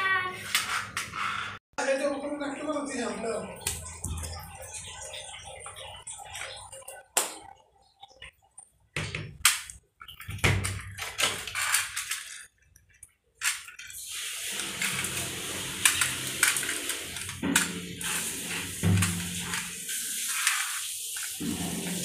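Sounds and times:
toy wheels rolling on tiles: 0.1s - 1.6s, 10.9s - 18.8s, 19.4s - 21.4s.

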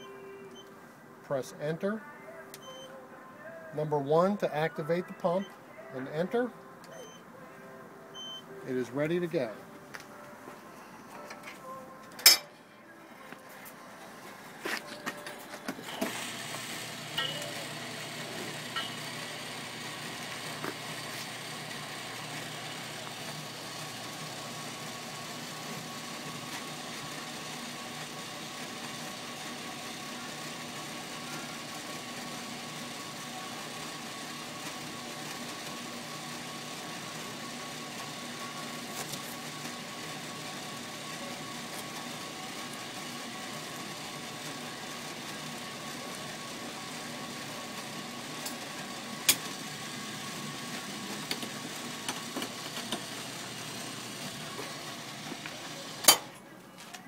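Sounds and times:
fuel pump humming: 15.7s - 56.2s.

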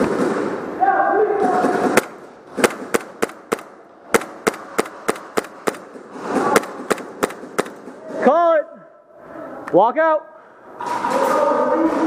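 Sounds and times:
airsoft guns firing: 1.4s - 8.0s.

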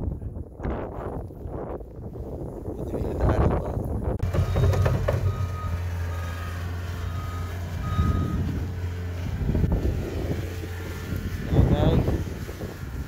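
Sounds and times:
diesel engine humming: 4.0s - 13.0s
backup alarm beeping: 4.2s - 8.5s.

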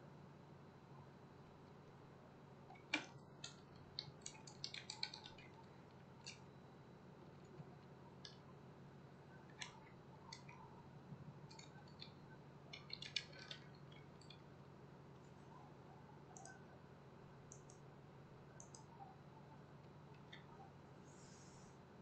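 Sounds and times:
low steady hum: 0.0s - 22.0s
mouse clicks: 16.3s - 16.6s, 17.5s - 17.8s, 18.6s - 18.9s.

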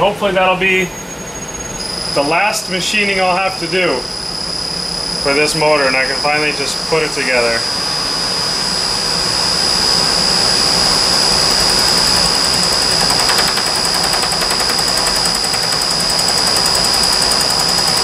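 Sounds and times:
milling machine spindle whine: 0.0s - 18.0s
fine rapid ticking: 11.6s - 18.0s.

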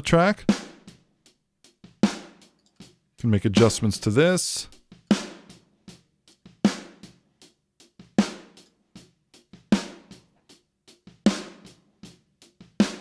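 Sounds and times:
drum kit playing: 0.0s - 13.0s
ringing snare backbeat: 3.6s - 4.0s.

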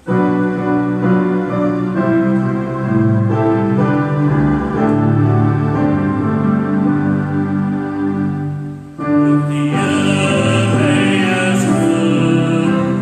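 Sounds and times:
keyboard playing held chords: 0.0s - 13.0s.

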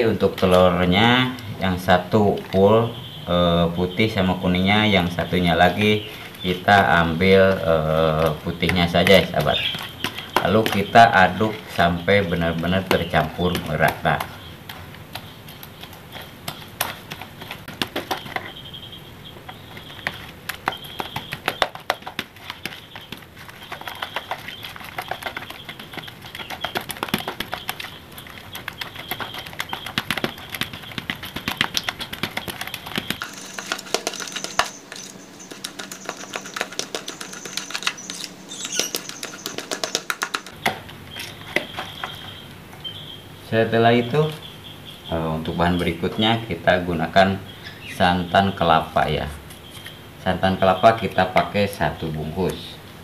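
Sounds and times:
spoon stirring in plastic bowl: 8.1s - 42.4s.

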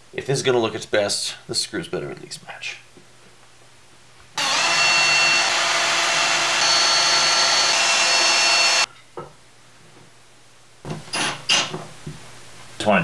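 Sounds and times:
cordless drill drilling into wood: 4.4s - 8.9s.

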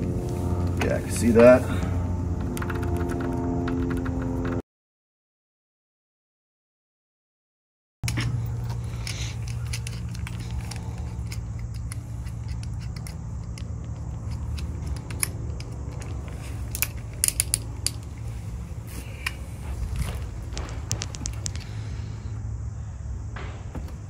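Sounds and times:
steady low hum: 0.0s - 4.6s, 8.0s - 24.0s
drill chuck clicking and rattling: 8.0s - 18.1s.

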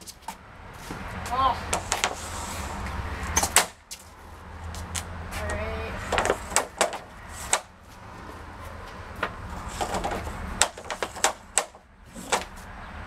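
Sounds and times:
hockey stick and pucks clacking: 1.7s - 2.2s, 6.1s - 7.7s, 9.2s - 12.5s.

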